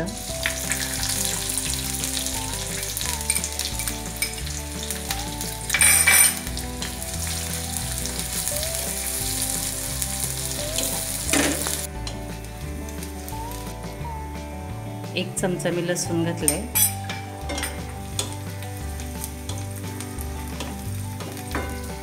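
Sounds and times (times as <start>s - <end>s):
onions sizzling in oil: 0.0s - 14.1s, 16.6s - 22.0s.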